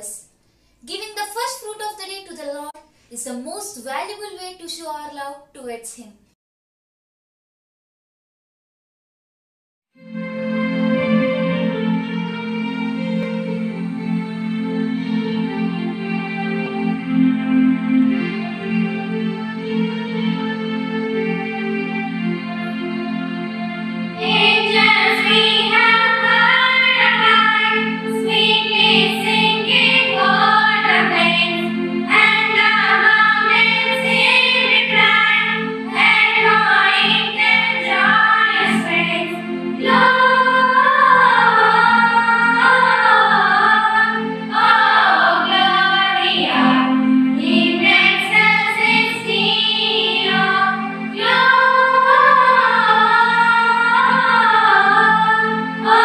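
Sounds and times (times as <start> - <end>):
held keyboard chord: 10.0 - 56.0
girls singing together: 24.2 - 56.0.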